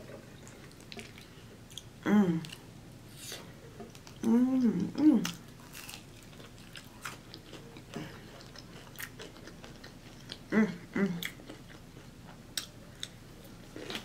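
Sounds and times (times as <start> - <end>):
person humming mm: 2.0 - 2.5, 10.5 - 11.4
wet chewing with crunches: 5.2 - 10.5.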